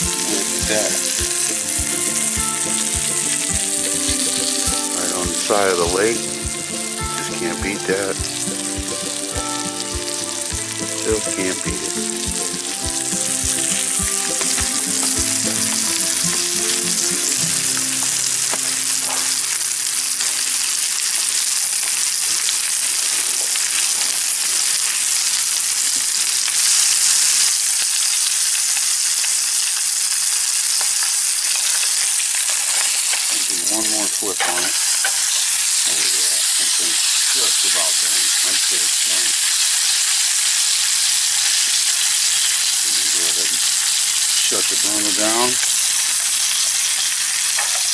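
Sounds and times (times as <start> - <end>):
music track: 0.0 - 20.5
fish sizzling in a pan: 0.0 - 47.9.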